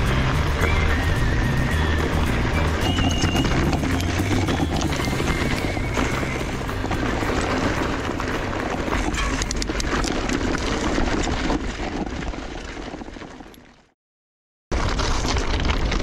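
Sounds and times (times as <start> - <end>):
wind on microphone: 0.0 - 11.8
bike rattling: 0.0 - 13.9, 14.7 - 16.0
bike tyres crunching on gravel: 0.0 - 13.9, 14.7 - 16.0.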